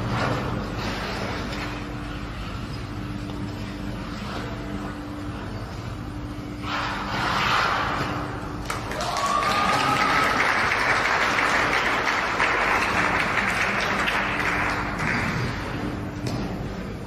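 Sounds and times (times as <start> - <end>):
audience applauding: 8.6 - 15.5.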